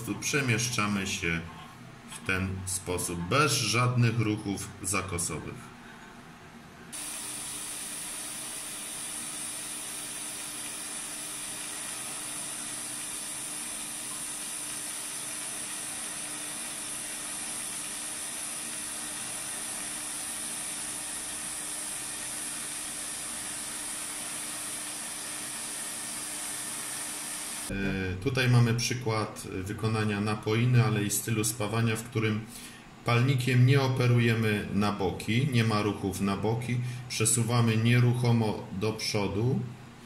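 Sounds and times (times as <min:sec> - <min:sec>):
welding arc hissing: 0:06.9 - 0:27.7.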